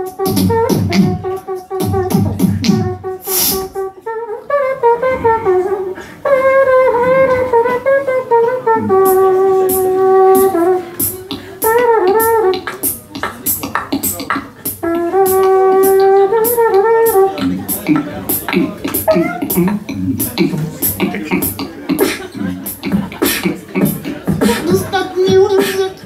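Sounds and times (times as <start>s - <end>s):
beatboxing mouth percussion: 0.0s - 3.9s, 6.2s - 26.0s
pitched vocal line: 11.0s - 26.0s.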